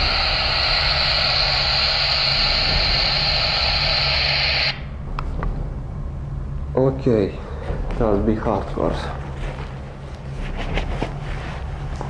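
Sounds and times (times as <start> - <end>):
loud radio static: 0.0 - 4.8.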